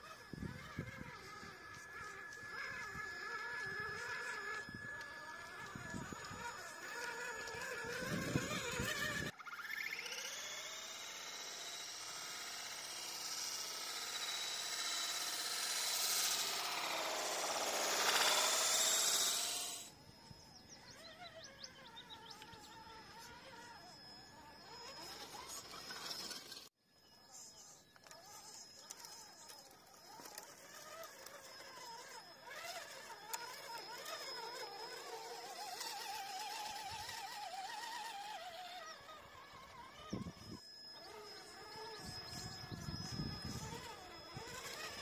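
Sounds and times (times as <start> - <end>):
rc car motor whine: 0.0 - 45.0.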